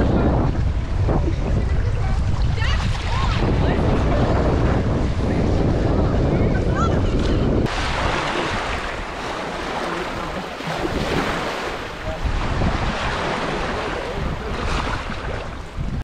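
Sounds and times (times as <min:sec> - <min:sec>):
small waves on sand: 0:00.0 - 0:16.0
splashing shallow water: 0:00.0 - 0:16.0
wind rumbling on microphone: 0:00.0 - 0:16.0.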